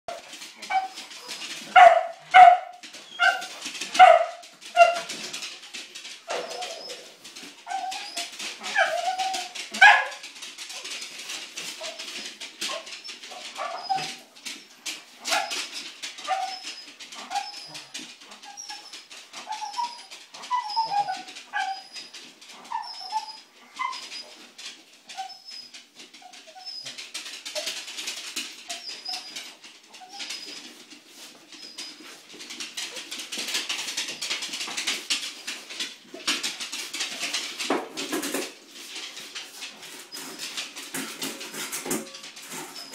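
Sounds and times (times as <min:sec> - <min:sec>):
dog whining and yelping: 0:00.6 - 0:05.2, 0:06.3 - 0:10.9, 0:11.7 - 0:27.9, 0:28.6 - 0:32.2, 0:42.0 - 0:42.9.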